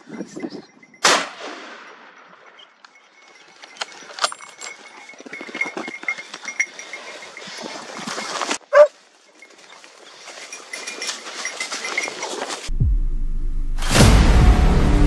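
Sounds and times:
rustling through dry brush: 0:04.7 - 0:12.7
dog barking: 0:08.7 - 0:08.9.

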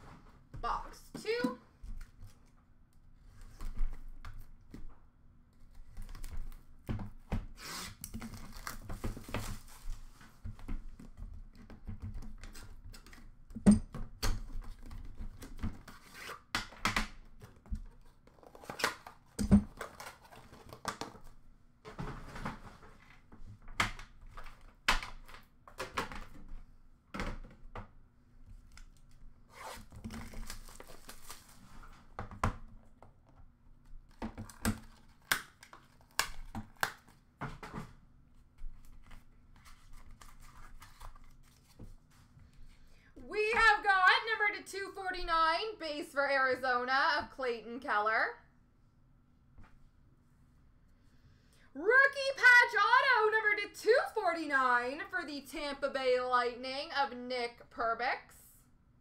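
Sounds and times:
wrapping tearing and crinkling: 0:28.6 - 0:32.0, 0:34.4 - 0:37.2, 0:38.8 - 0:41.8.

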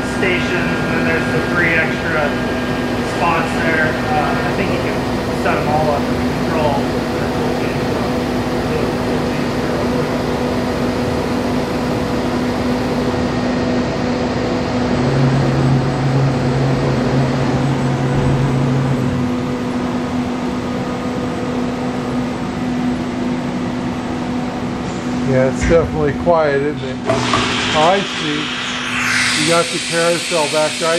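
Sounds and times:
machine spindle humming: 0:00.0 - 0:13.0, 0:25.5 - 0:30.9
lower machine hum: 0:00.0 - 0:30.9.

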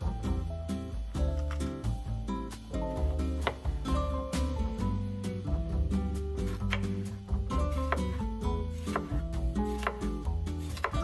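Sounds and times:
background music with bass: 0:00.0 - 0:11.0
knife tapping cutting board: 0:03.4 - 0:03.8, 0:06.5 - 0:07.0, 0:07.9 - 0:08.2, 0:08.9 - 0:10.1
knife slicing pepper: 0:06.4 - 0:11.0.

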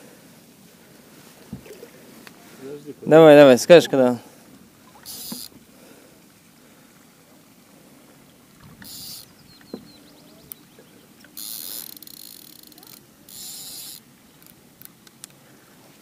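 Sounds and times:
short hissing bursts: 0:05.0 - 0:05.5, 0:08.8 - 0:09.3, 0:13.3 - 0:14.0.

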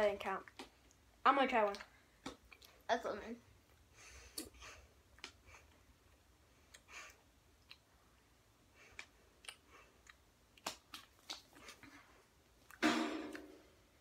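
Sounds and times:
faint clicks and ticks of eating: 0:00.2 - 0:02.9, 0:03.6 - 0:12.8.

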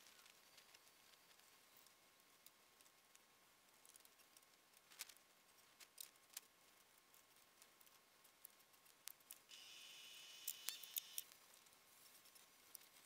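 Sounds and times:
distant cordless drill whine: 0:09.5 - 0:11.2.

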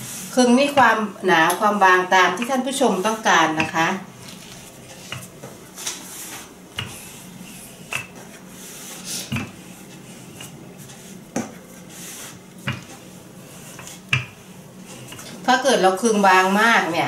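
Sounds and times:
rolling pin rolling dough: 0:00.0 - 0:17.0
rolling pin knocking on counter: 0:12.6 - 0:12.9.

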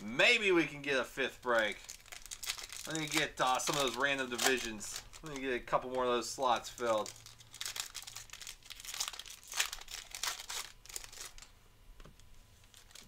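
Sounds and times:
wrapper tearing and crinkling: 0:01.5 - 0:05.7, 0:06.4 - 0:11.5, 0:12.6 - 0:13.0.

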